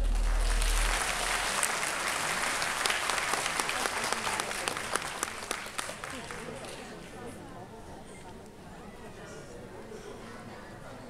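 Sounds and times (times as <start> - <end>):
crowd applauding: 0.0 - 6.8.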